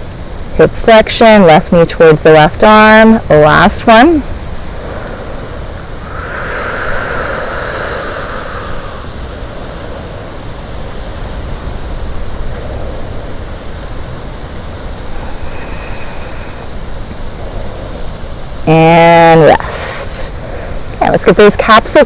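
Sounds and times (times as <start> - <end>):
low background rumble and hiss: 0.0 - 22.0
rushing noise: 3.6 - 11.7, 13.1 - 20.0.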